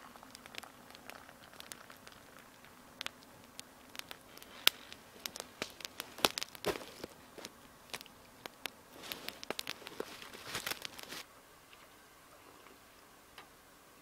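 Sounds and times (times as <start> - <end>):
campfire crackling and popping: 0.0 - 11.3
rustling: 0.0 - 11.9
faint steady hiss: 0.0 - 14.0.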